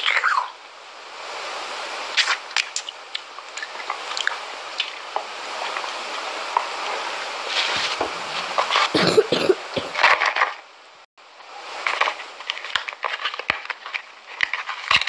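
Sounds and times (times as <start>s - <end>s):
steady hiss: 0.0s - 9.9s.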